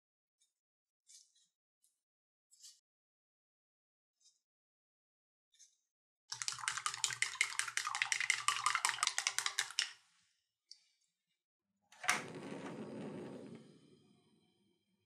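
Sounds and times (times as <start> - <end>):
eggs being beaten in bowl: 6.3 - 10.0.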